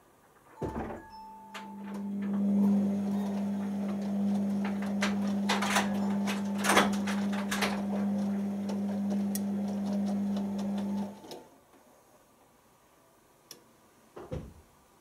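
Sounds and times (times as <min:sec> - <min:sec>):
washing machine motor hum: 0:01.5 - 0:11.4.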